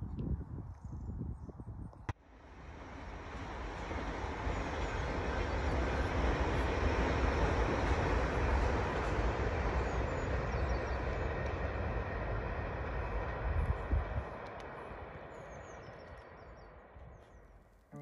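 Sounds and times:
train wheels rumbling on rail: 2.4s - 17.2s.

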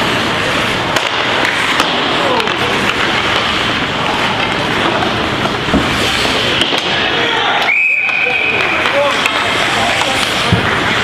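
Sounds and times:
crowd shouting and cheering: 6.5s - 10.8s.

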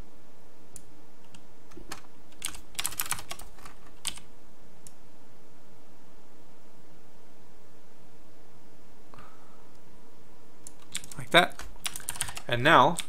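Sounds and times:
keyboard keystrokes: 1.3s - 4.3s, 10.7s - 13.0s.

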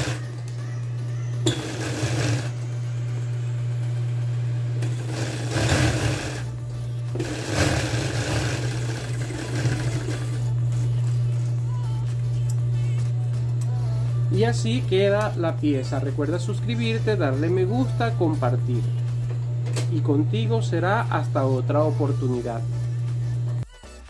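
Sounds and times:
sewing machine stitching: 0.0s - 0.3s, 1.5s - 2.6s, 4.8s - 6.6s, 7.2s - 10.5s.

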